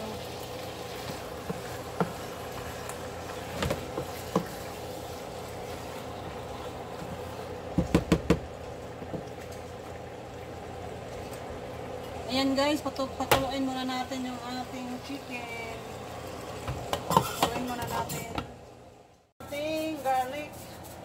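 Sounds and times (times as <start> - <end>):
chicken sizzling in a pan: 0.0 - 7.5.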